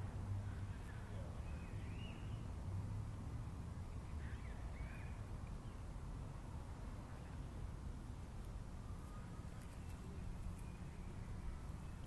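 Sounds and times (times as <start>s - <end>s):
faint bird chirps: 0.9s - 2.5s.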